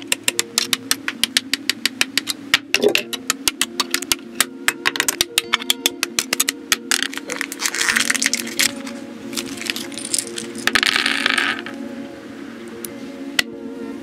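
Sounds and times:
nippers snipping plastic: 0.0 - 10.8
background music: 0.0 - 14.0.

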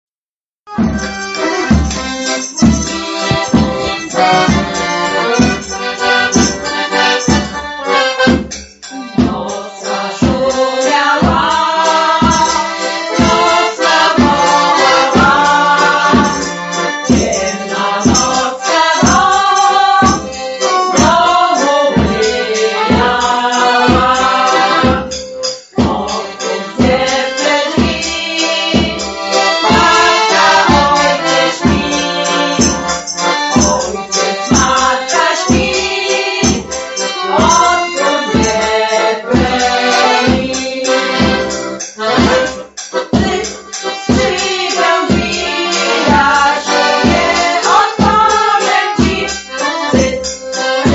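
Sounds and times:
folk music on accordion: 0.7 - 50.9.

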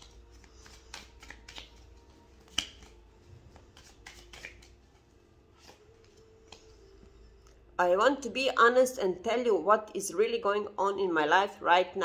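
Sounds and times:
sharp card snap: 0.0 - 1.8, 2.4 - 3.0, 3.8 - 4.7
cards being shuffled: 0.0 - 7.0.

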